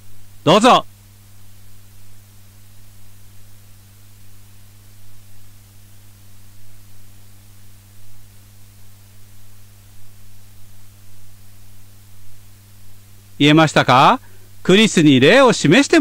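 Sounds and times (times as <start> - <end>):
faint higher hum: 0.0 - 16.0
low electrical hum: 0.0 - 16.0
steady hiss: 0.0 - 16.0.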